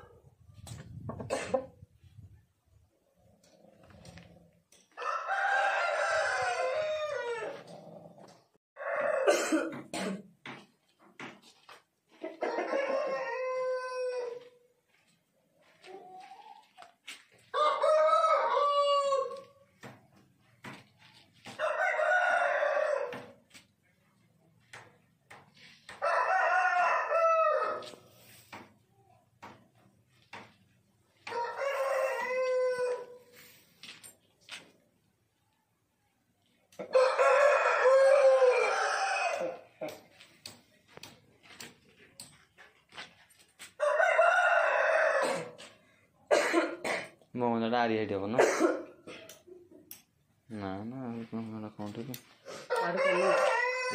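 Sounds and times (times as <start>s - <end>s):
roosters crowing: 4.9s - 8.1s, 8.8s - 9.6s, 12.4s - 14.6s, 17.5s - 19.6s, 21.5s - 23.4s, 26.0s - 28.2s, 31.2s - 33.6s, 36.8s - 40.2s, 43.8s - 45.8s, 52.4s - 53.9s.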